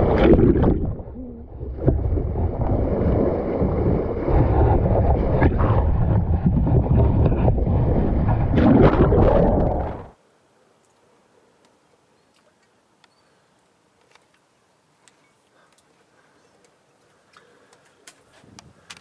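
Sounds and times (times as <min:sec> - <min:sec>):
wind buffeting microphone: 0:00.0 - 0:10.1.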